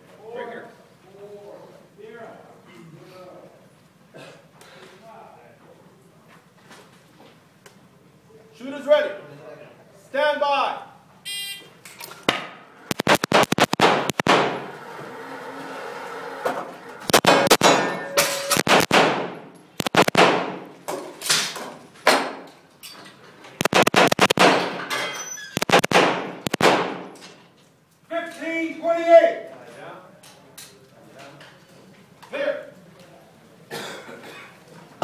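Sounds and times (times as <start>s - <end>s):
rapid gunshots echoing: 12.9s - 14.6s, 17.1s - 17.8s, 18.6s - 20.7s, 23.6s - 24.8s, 25.6s - 27.2s
metallic clangs: 17.2s - 18.7s.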